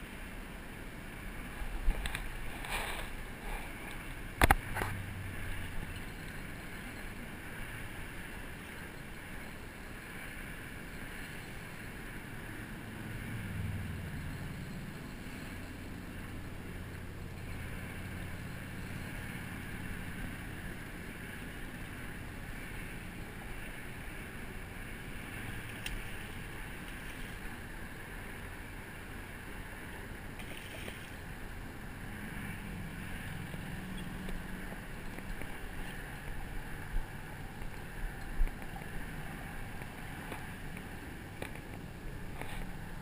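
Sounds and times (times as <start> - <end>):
outdoor background noise: 0.0 - 43.0
fish splashing in water: 30.2 - 36.9.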